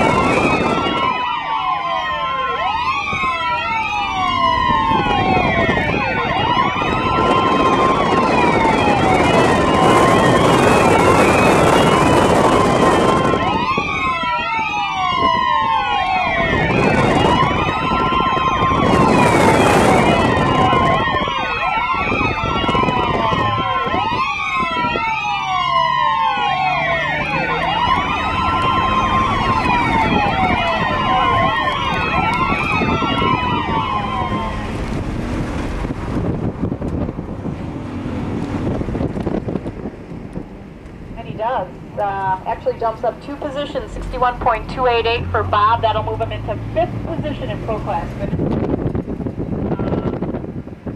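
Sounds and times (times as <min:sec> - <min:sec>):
car engine drone: 0:00.0 - 0:50.9
wind and road rush: 0:00.0 - 0:50.9
car engine running hard: 0:32.3 - 0:41.6.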